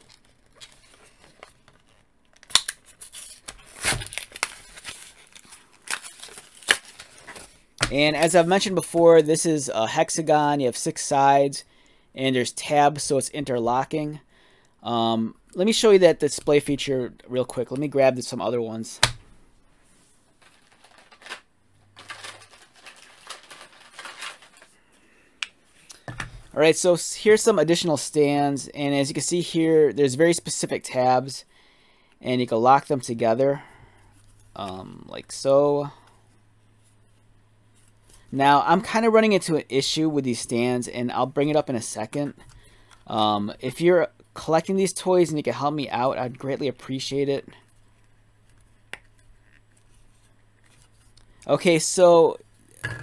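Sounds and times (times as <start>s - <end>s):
plastic bag tearing and crinkling: 0.0s - 7.6s, 22.0s - 24.7s.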